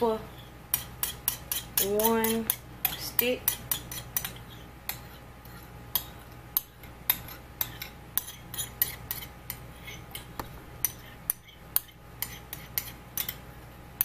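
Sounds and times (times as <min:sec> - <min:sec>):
metal spoon scraping glass bowl: 0:07.1 - 0:10.2.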